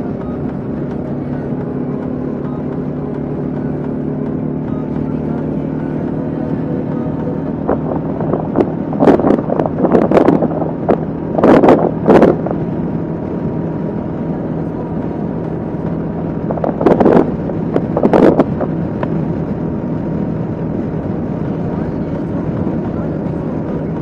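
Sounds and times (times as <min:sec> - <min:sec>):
motorcycle engine droning: 0:00.0 - 0:24.0
wind buffeting microphone: 0:06.4 - 0:24.0.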